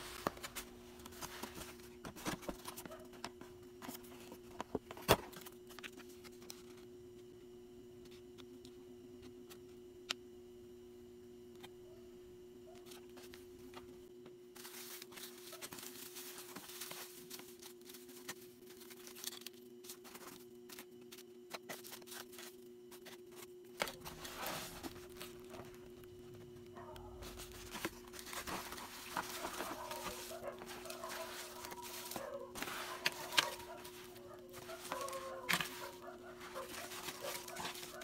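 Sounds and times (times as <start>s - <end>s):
packaging rustling and crinkling: 0.0s - 6.8s, 14.6s - 38.0s
steady low hum: 0.0s - 38.0s.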